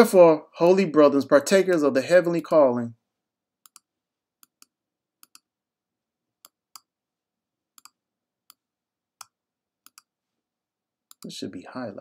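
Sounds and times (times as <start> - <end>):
computer mouse clicks: 3.6 - 5.5, 7.8 - 8.6, 9.2 - 10.1, 11.1 - 11.3.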